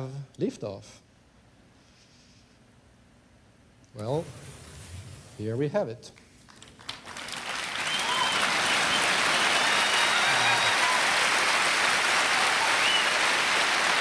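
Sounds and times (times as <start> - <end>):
audience applause: 6.5 - 14.0.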